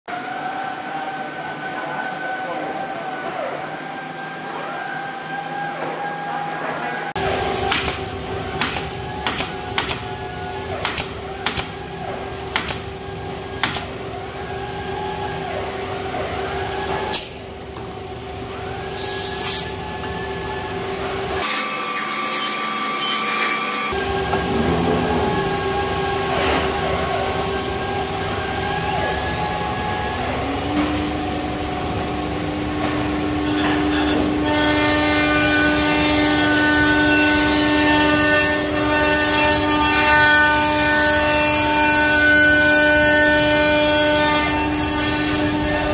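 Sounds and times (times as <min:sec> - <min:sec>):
pneumatic nailer firing: 0:12.5 - 0:12.9.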